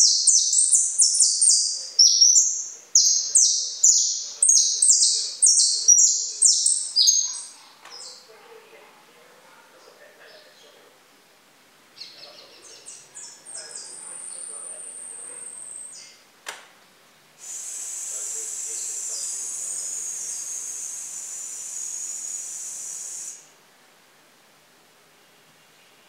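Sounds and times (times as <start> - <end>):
songbird singing: 0.0 - 8.5, 9.7 - 11.0, 11.9 - 16.3, 17.6 - 23.5
sharp click: 16.4 - 16.7.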